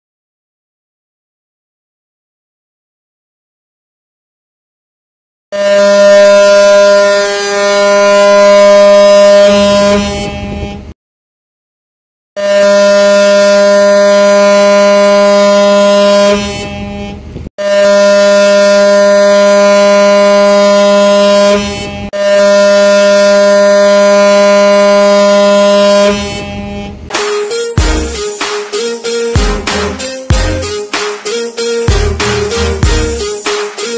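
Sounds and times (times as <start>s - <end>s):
ship's whistle blasts: 5.5s - 10.9s, 12.4s - 33.9s.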